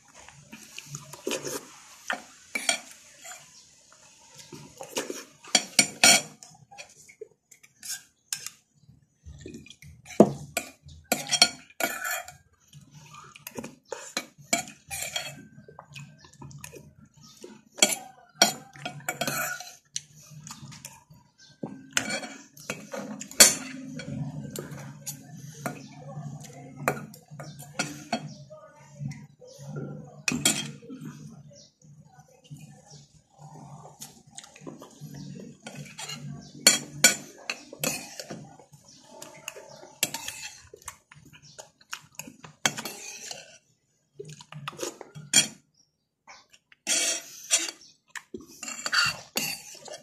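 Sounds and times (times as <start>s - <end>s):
cutlery clinking on dishes: 1.2s - 3.4s, 4.8s - 7.0s, 9.5s - 12.4s, 13.5s - 16.2s, 17.8s - 19.8s, 20.6s - 25.8s, 26.8s - 28.4s, 30.2s - 31.3s, 35.6s - 43.6s, 44.7s - 45.6s, 46.3s - 50.0s.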